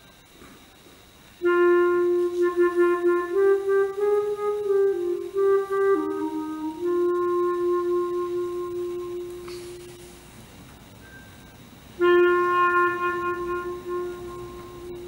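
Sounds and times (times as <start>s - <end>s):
clarinet playing slowly: 1.4s - 10.3s, 12.0s - 15.0s.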